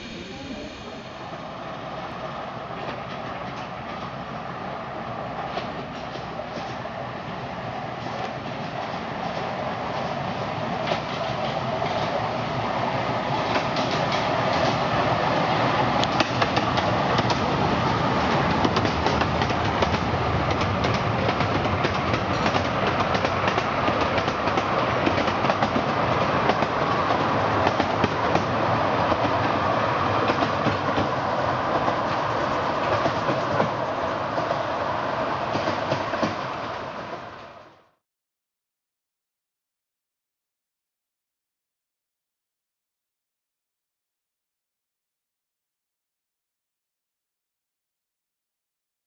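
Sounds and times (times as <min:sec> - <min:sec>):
train wheels clicking over rail joints: 0:13.3 - 0:14.9, 0:16.0 - 0:34.6, 0:35.5 - 0:36.8.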